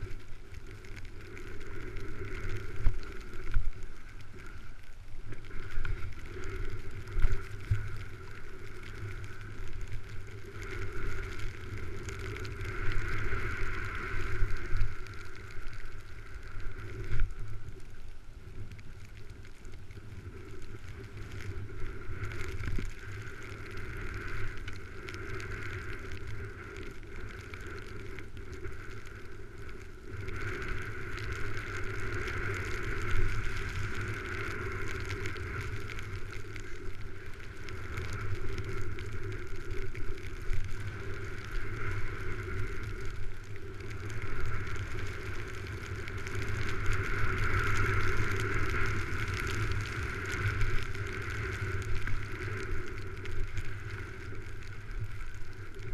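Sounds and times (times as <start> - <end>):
wind rushing over camera: 0.0 - 55.9
skis hissing through snow: 10.2 - 17.8.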